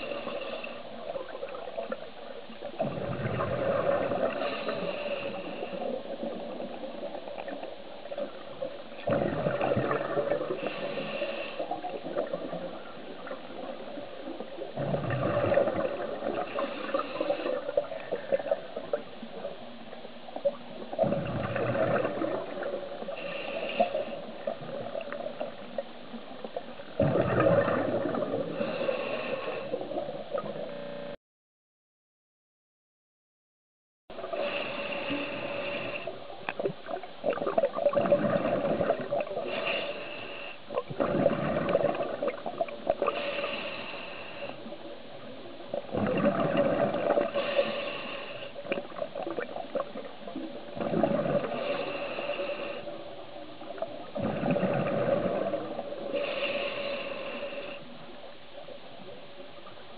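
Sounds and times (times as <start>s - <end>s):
exhaust bubbles gurgling: 0.0s - 11.0s, 11.7s - 19.5s, 20.4s - 23.3s, 27.0s - 29.0s, 36.5s - 39.6s, 40.8s - 43.7s, 44.7s - 47.8s, 48.6s - 52.6s, 53.6s - 56.4s
underwater regulator breathing: 3.0s - 7.6s, 9.2s - 13.9s, 15.1s - 19.0s, 21.5s - 25.5s, 27.8s - 30.0s, 34.2s - 36.7s, 38.0s - 44.9s, 46.1s - 50.1s, 50.8s - 58.2s.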